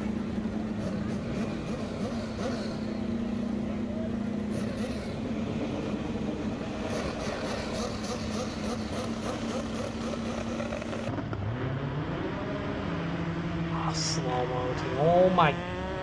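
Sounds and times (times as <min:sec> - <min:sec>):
motorcycle engines idling: 0:00.0 - 0:11.5
engine revving: 0:00.0 - 0:16.0.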